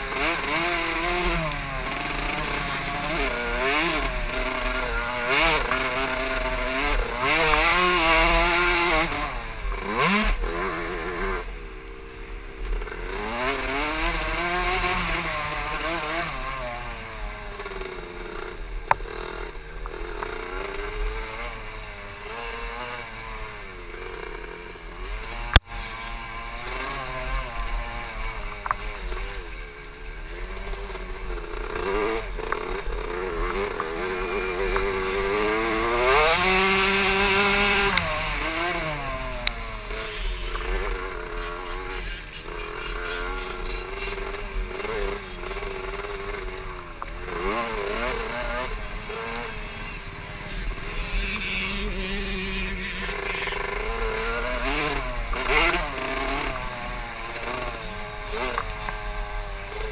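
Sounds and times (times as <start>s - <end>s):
two-stroke motorcycle engine revving: 0.0s - 59.9s.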